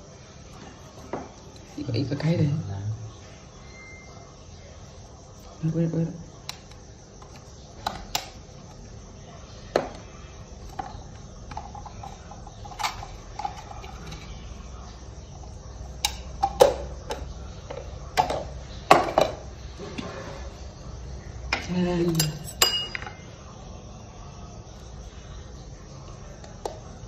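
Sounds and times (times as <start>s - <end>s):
spice containers and utensils clinking: 10.6s - 14.5s, 21.5s - 23.2s.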